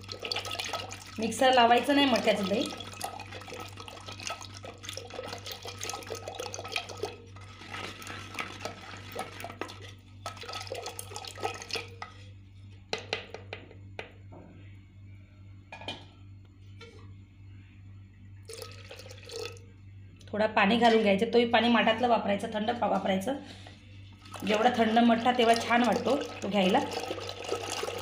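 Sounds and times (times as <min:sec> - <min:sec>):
curd sloshing in clay pot: 0:00.0 - 0:12.3, 0:18.5 - 0:19.6, 0:24.1 - 0:28.0.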